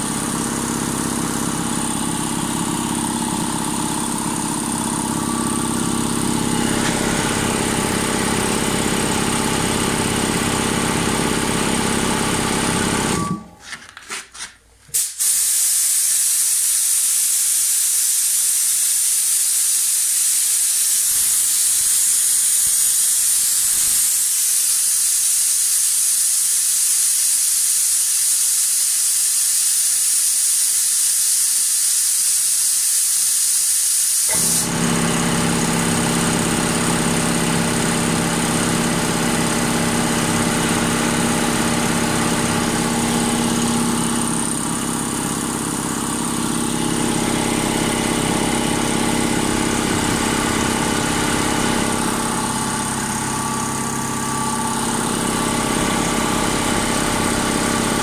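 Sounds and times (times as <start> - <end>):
compressor motor and pump running: 0.0 - 58.0
compressed air hissing: 14.9 - 34.7.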